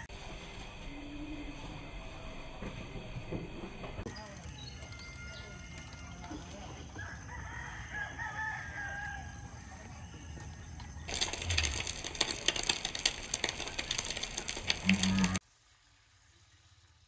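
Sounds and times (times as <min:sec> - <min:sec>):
crackling hiss: 0:04.0 - 0:17.0
rooster crowing: 0:04.1 - 0:11.0.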